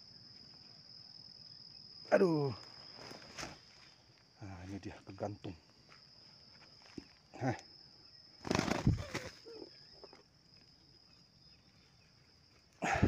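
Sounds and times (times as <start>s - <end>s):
high insect buzz: 0.0s - 13.0s
rustling in dry grass: 2.8s - 4.1s
bird wings flapping: 8.4s - 9.5s.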